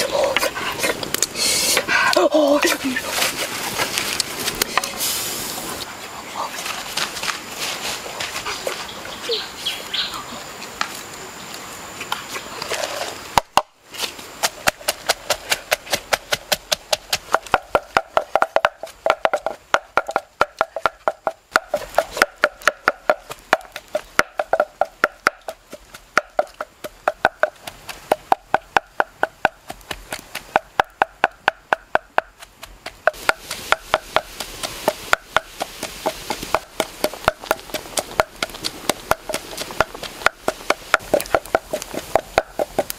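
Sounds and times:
pestle pounding in a mortar: 0:14.4 - 0:42.9.

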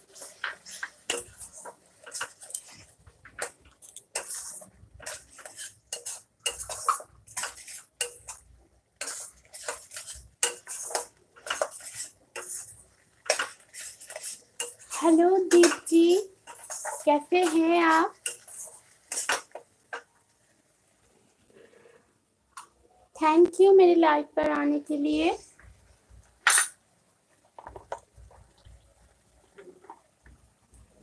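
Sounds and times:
metal spatula scraping a pan: 0:00.0 - 0:20.1, 0:26.4 - 0:26.8.

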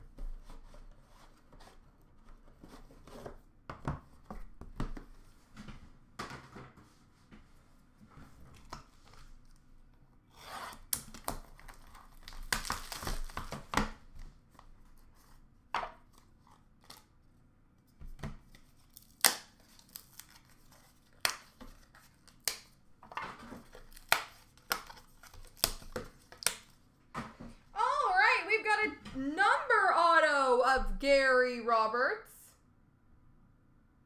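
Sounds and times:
packaging tearing and rustling: 0:10.3 - 0:14.0, 0:18.5 - 0:22.8, 0:23.4 - 0:26.8.

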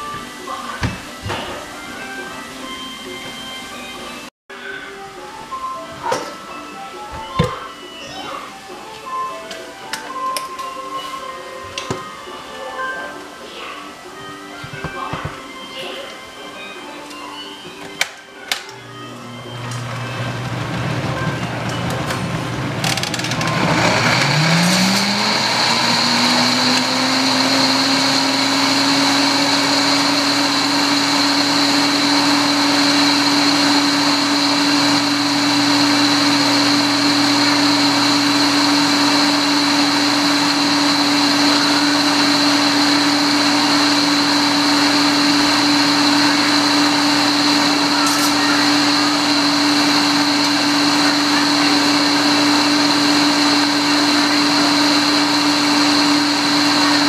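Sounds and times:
blender motor whining: 0:18.8 - 0:57.0.

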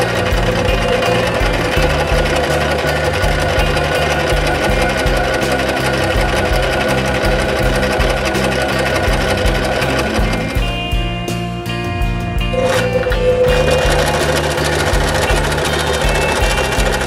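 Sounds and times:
sewing machine running: 0:00.0 - 0:11.0, 0:12.5 - 0:17.0
background music: 0:00.0 - 0:17.0.

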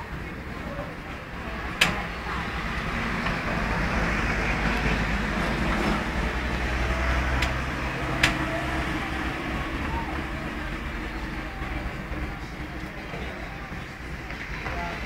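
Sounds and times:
car driving past: 0:02.1 - 0:10.7.

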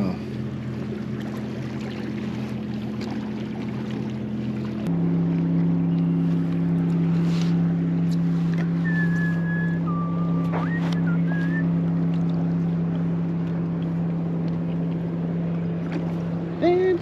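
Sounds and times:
boat motor humming: 0:00.0 - 0:17.0
high whistled tone: 0:08.8 - 0:11.7.

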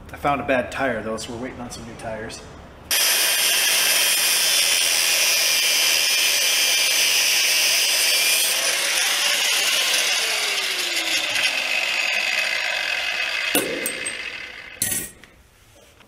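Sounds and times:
angle grinder cutting steel: 0:02.9 - 0:15.4.

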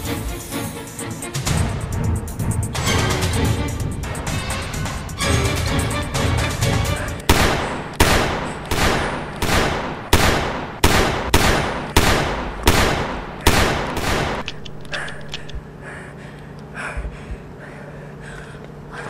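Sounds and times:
music: 0:00.0 - 0:07.3
pistol shots: 0:07.3 - 0:15.4.

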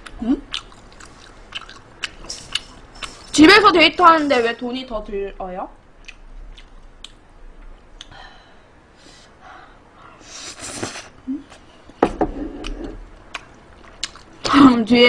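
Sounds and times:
faint chewing: 0:00.0 - 0:03.4, 0:06.0 - 0:08.2, 0:12.6 - 0:14.5.

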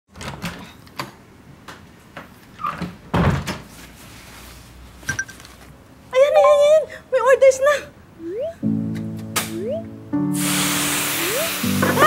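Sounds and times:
wooden door opening and closing: 0:00.1 - 0:01.2, 0:02.6 - 0:03.7.

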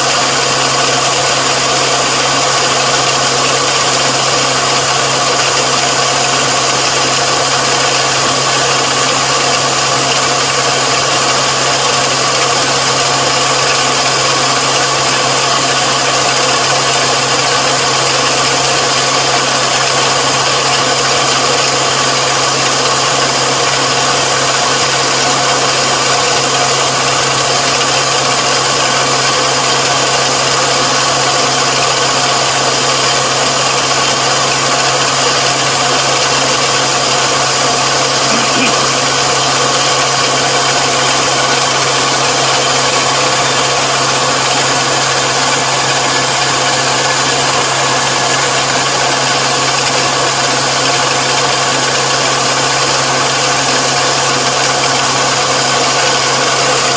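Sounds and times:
diesel engine running steadily: 0:00.0 - 0:56.9.

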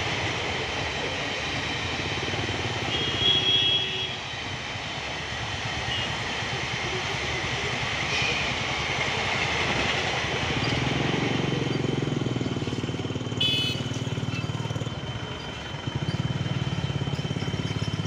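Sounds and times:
passenger train rushing past: 0:00.0 - 0:18.0
short horn beep: 0:13.4 - 0:13.9.

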